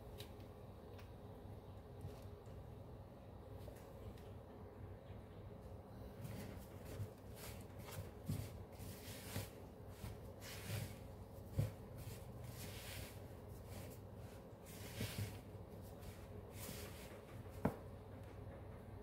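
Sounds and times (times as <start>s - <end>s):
spatula scraping dough in bowl: 7.3s - 17.1s.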